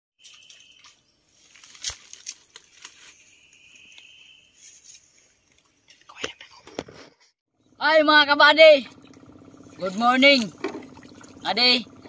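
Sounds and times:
dry leaves and twigs rustling: 0.3 - 5.8.

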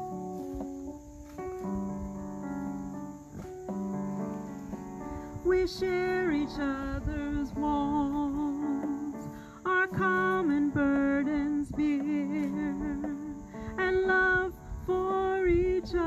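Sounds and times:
instrumental accompaniment: 0.0 - 16.0
woman singing: 5.2 - 16.0.

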